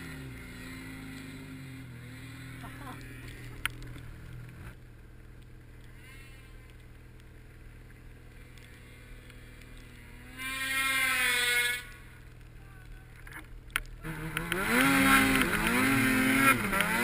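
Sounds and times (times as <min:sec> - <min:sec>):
snowmobile engine revving: 0:00.0 - 0:04.8, 0:05.8 - 0:17.0.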